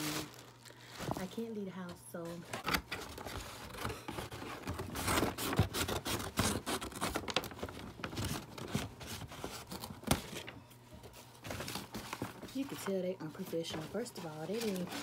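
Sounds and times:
plastic bag crinkling: 0.0s - 1.7s, 11.2s - 15.0s.

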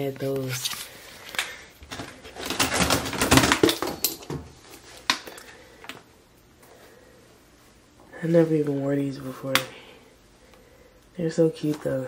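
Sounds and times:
plastic boxes clicking and knocking: 1.4s - 5.4s.

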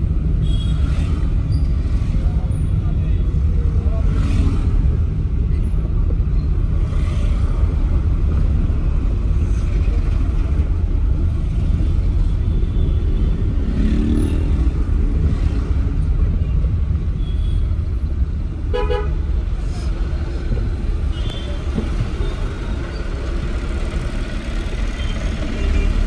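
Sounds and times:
engine and road rumble: 0.0s - 26.0s.

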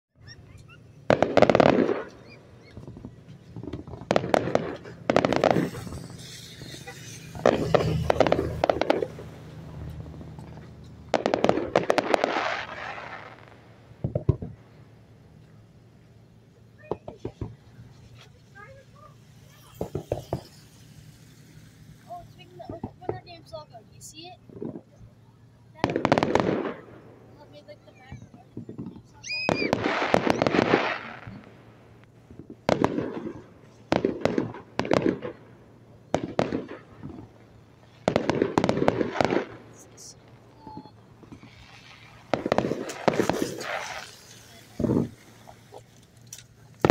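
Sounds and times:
fireworks crackling bangs: 0.2s - 46.9s
heavy firework booms: 1.0s - 14.8s, 25.8s - 35.5s, 36.1s - 45.6s
small firework pops: 1.1s - 14.7s, 16.8s - 18.4s, 19.5s - 23.3s, 28.1s - 35.4s, 36.1s - 37.4s, 38.0s - 46.9s.

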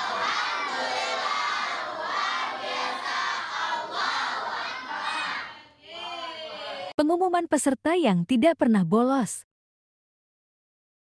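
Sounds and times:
children shouting and cheering: 0.0s - 6.9s.

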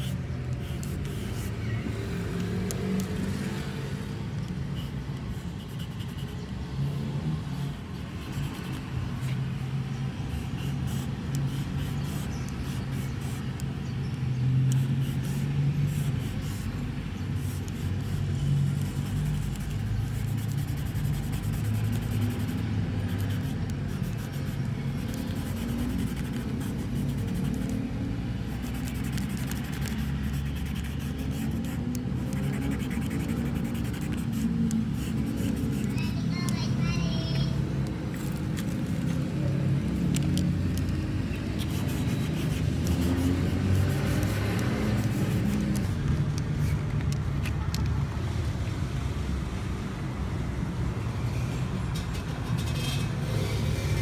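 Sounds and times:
paint marker scratching on board: 0.0s - 1.6s, 4.4s - 9.6s, 10.3s - 13.9s, 14.6s - 37.5s, 40.0s - 46.9s
vehicle engine rumbling: 0.0s - 54.0s.

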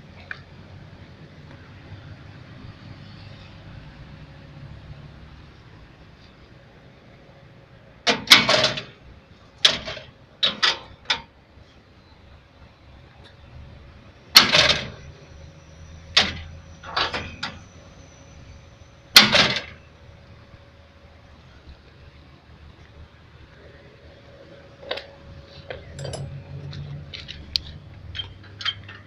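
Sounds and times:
metal levers clanking and rattling: 8.1s - 9.0s, 9.6s - 11.3s, 14.3s - 15.2s, 16.0s - 17.7s, 19.1s - 19.8s, 24.8s - 29.0s.

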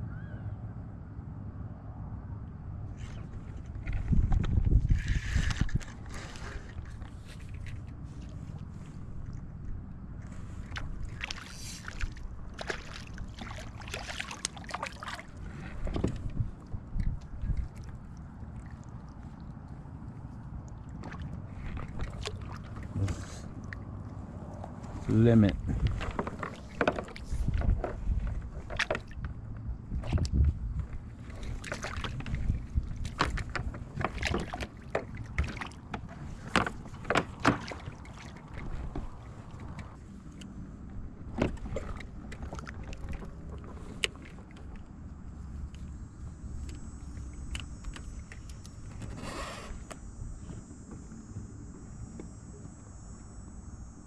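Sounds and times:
low thumps in a kayak: 3.7s - 6.1s, 12.3s - 18.2s, 25.6s - 40.0s
fish splashing in water: 10.3s - 24.9s, 31.0s - 40.0s
fish splashing at the surface: 10.6s - 15.6s.

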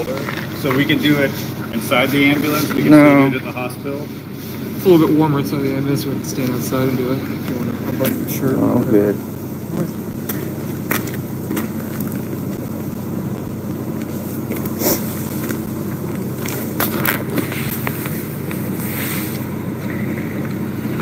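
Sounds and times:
vehicle engine idling: 0.0s - 21.0s
handling clicks and rustles: 9.7s - 21.0s.

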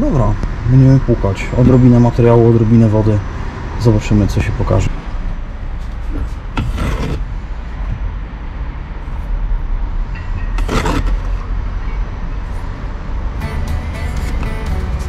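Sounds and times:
steady low rumble: 4.6s - 13.4s.

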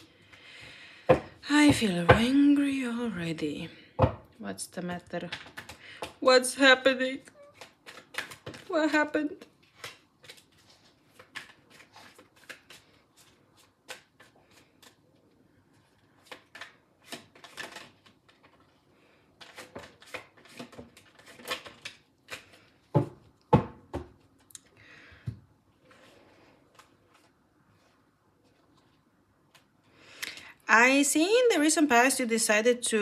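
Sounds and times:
cards being shuffled: 7.4s - 8.7s, 9.4s - 18.8s, 19.4s - 22.8s, 25.9s - 29.8s.

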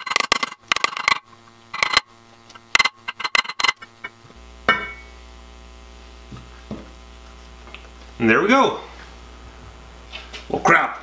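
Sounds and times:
metal clank: 2.8s - 5.1s.

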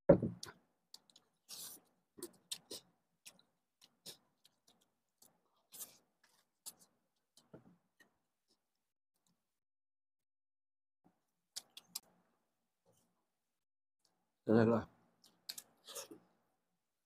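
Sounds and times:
chewing and mouth smacks: 0.4s - 7.5s, 11.5s - 12.1s, 15.2s - 16.2s.

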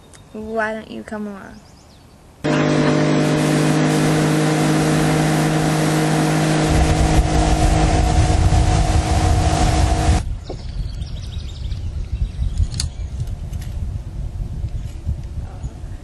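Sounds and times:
rushing water and air: 2.3s - 10.4s
heavy low rumble: 2.4s - 10.4s
outboard motor running: 2.5s - 10.2s.

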